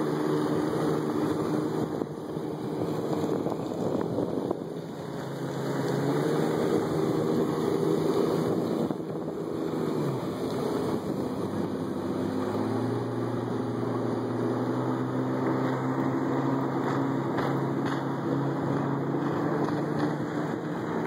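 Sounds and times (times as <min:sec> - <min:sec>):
motorboat engine running: 0:00.0 - 0:21.0
wind and water rushing: 0:00.0 - 0:21.0.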